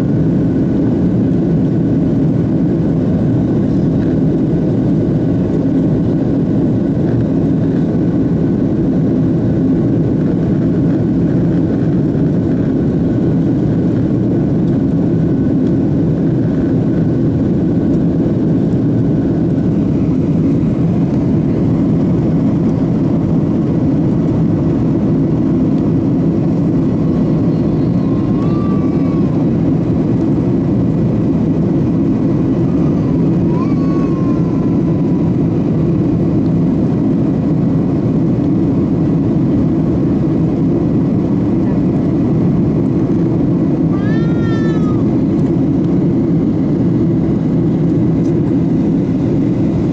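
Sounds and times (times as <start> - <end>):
jet engines rumbling: 0.0 - 49.9
faint high whine: 27.0 - 29.9.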